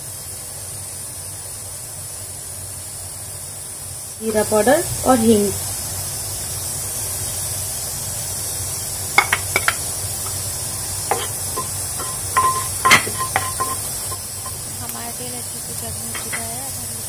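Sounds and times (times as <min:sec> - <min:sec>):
oil hissing: 0:00.0 - 0:17.0
wooden spatula knocking pan: 0:09.2 - 0:10.4, 0:11.0 - 0:14.7, 0:16.2 - 0:16.5.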